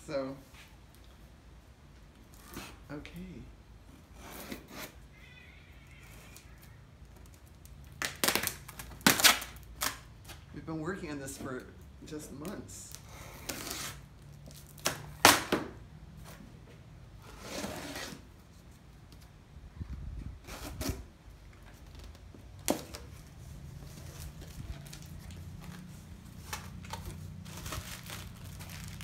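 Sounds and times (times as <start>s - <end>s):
blade slitting packing tape: 8.0s - 10.1s.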